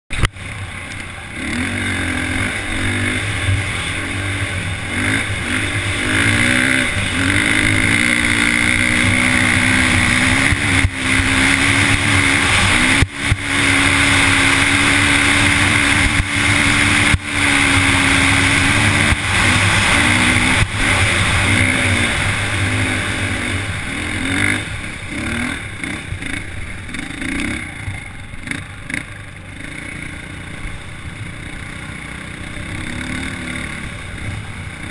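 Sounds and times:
dirt bike engine revving: 0.1 - 34.9.

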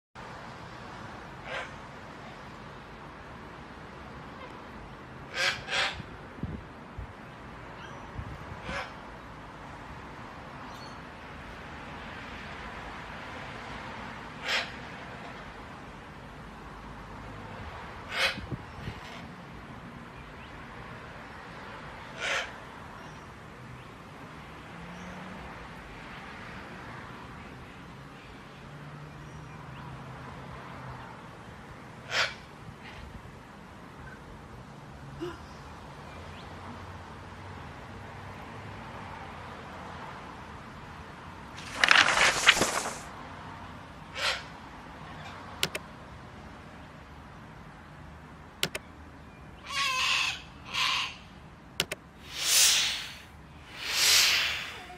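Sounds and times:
wind and rain in trees: 41.4 - 43.6, 52.2 - 54.9
whooshes of hiss: 41.6 - 43.1, 52.2 - 54.9
computer mouse clicks: 45.6 - 45.8, 48.6 - 48.8, 51.8 - 52.0
cockatoo screeching: 52.3 - 54.9.

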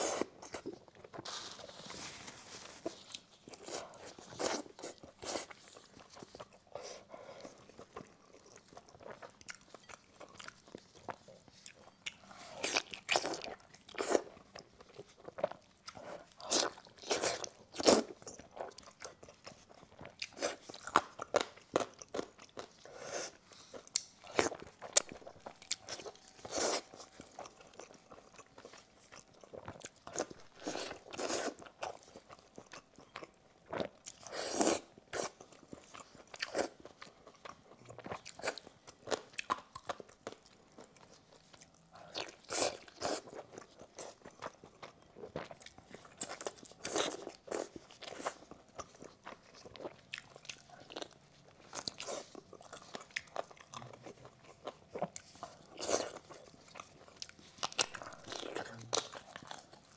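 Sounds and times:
chewing close to microphone: 2.8 - 59.9.

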